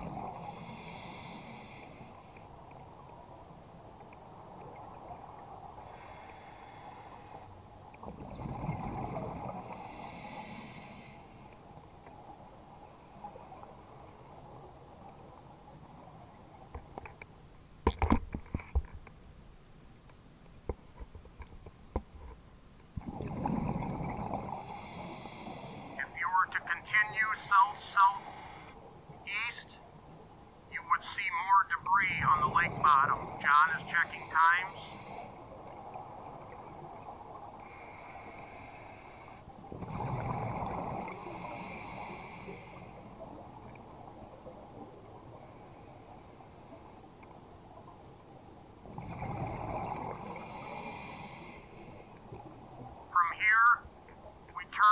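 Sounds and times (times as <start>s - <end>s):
diver breathing through regulator: 0.3s - 2.3s, 5.8s - 7.5s, 9.6s - 11.5s, 24.5s - 26.0s, 28.2s - 28.8s, 37.6s - 43.0s, 49.1s - 52.1s
exhaled bubbles gurgling: 7.9s - 10.9s, 23.0s - 26.0s, 32.0s - 47.0s, 48.8s - 53.2s
gurgling exhaled bubbles: 8.0s - 10.7s, 23.0s - 25.8s, 39.6s - 42.6s, 48.8s - 51.3s.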